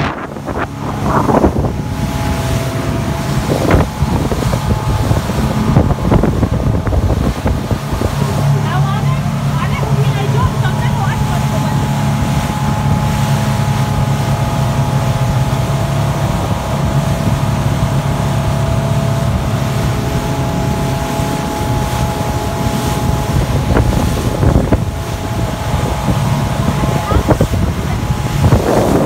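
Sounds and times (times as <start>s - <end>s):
outboard motor droning: 0.0s - 29.0s
rushing boat wake: 0.0s - 29.0s
wind on microphone: 0.0s - 29.0s.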